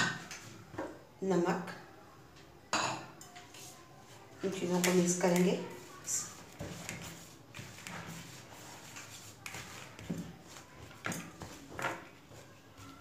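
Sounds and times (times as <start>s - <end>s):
hand mixing flour in bowl: 3.4s - 13.0s.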